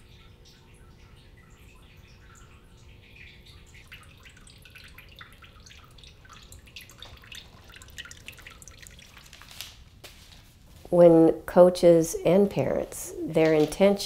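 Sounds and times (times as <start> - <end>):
water fountain trickling: 0.0 - 10.0
water dripping onto stones: 0.4 - 9.7.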